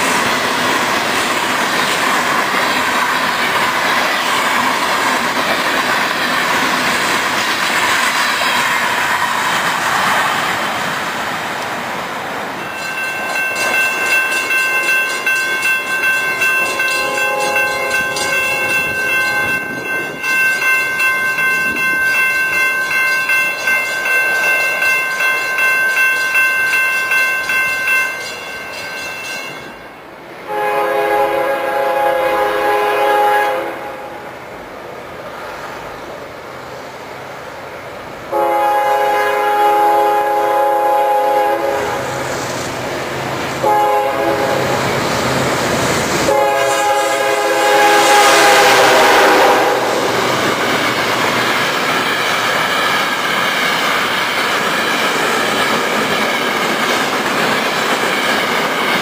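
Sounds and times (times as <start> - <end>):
train wheels clattering on rails: 0.0 - 11.9, 12.5 - 30.0, 41.6 - 59.0
locomotive air horn blasts: 16.7 - 18.4, 30.5 - 34.2, 38.3 - 42.2, 43.6 - 44.9, 46.2 - 50.2.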